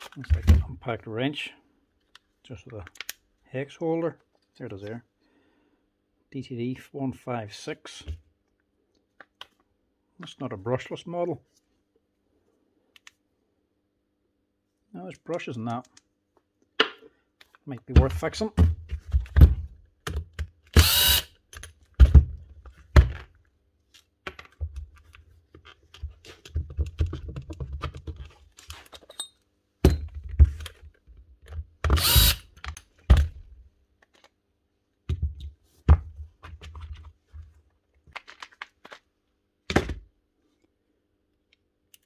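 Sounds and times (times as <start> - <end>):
clicks and knocks of handling: 2.0 - 3.2, 21.5 - 29.3, 34.0 - 34.4, 35.1 - 39.1
cordless drill running in spurts: 20.8 - 21.3, 31.9 - 32.5
screws and plastic parts clattering: 24.3 - 33.4.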